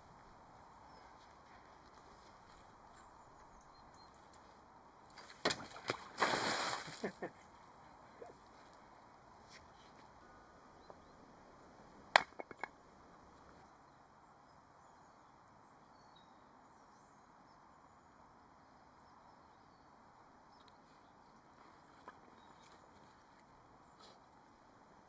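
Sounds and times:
faint background hiss: 0.0s - 25.0s
hatchet striking wood: 12.2s - 12.7s.

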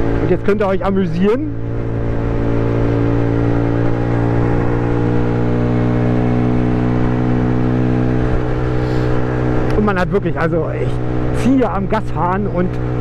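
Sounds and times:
moped engine droning: 0.0s - 13.0s.

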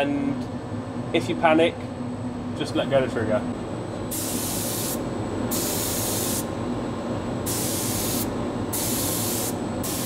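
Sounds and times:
spray gun hissing: 4.1s - 6.5s, 7.5s - 10.0s.

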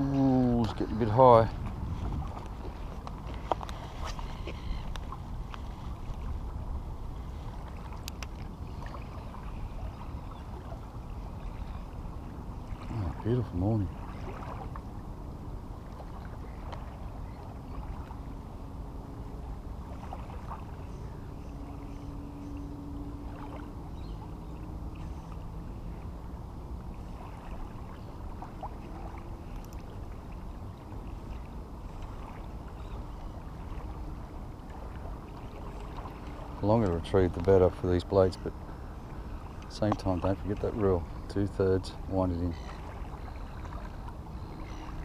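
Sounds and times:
faint hum: 0.0s - 45.0s
water lapping at shore: 0.0s - 45.0s
faint clicks: 8.0s - 8.5s, 29.6s - 29.9s.

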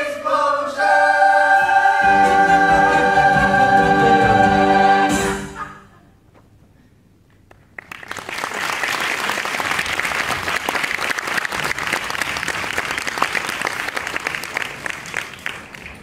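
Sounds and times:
audience applauding: 7.5s - 16.0s.

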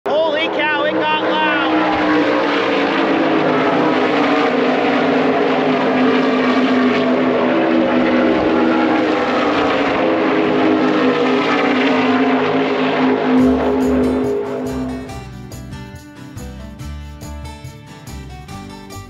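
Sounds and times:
race car engines droning: 0.0s - 15.2s.

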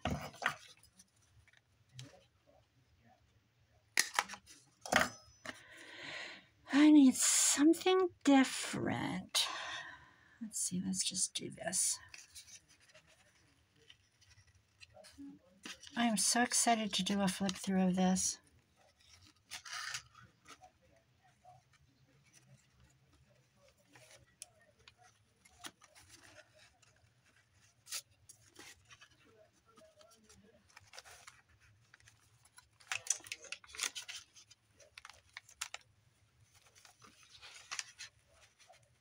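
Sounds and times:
paper rustling: 12.0s - 16.0s, 18.4s - 39.0s.

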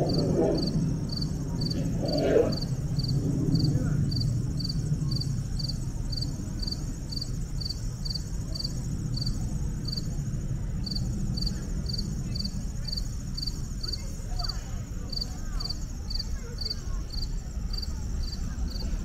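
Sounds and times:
low rumble: 0.0s - 6.5s
cricket chirping: 0.0s - 19.0s.

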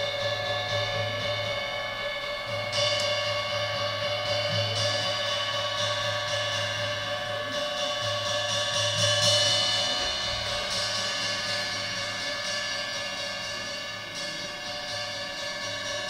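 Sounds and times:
ringing percussion tones: 0.0s - 16.0s.

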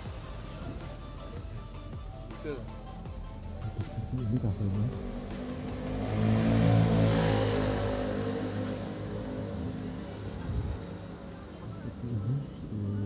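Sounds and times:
vehicle engine passing by: 2.6s - 13.0s.

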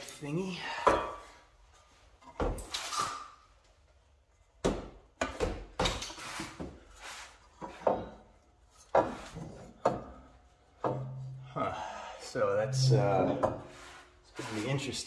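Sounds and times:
exhaust pipe knocking and scraping: 7.5s - 11.6s.

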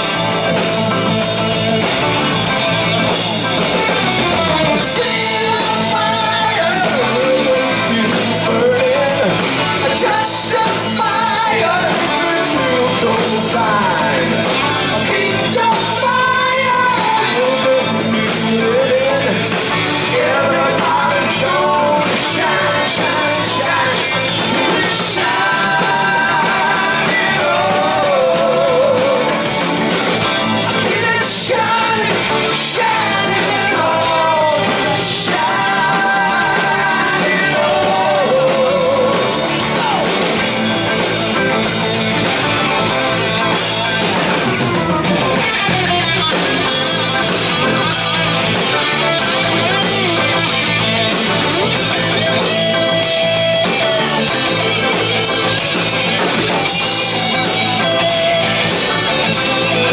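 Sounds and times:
rock band playing live: 0.0s - 59.9s
man singing lead vocal: 4.7s - 40.6s.

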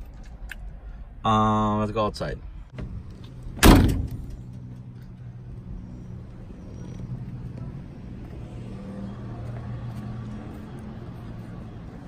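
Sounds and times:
car door slamming: 2.8s - 4.3s.

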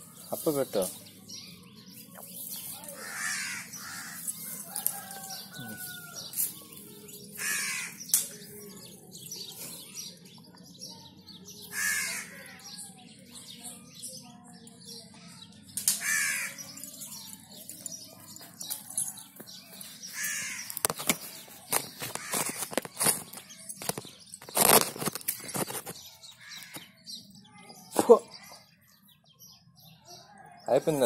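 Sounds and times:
small birds chirping: 0.0s - 31.0s
crows cawing: 3.0s - 4.3s, 7.4s - 8.0s, 11.7s - 12.5s, 16.0s - 16.6s, 20.2s - 20.8s, 22.2s - 22.6s, 26.4s - 26.9s.

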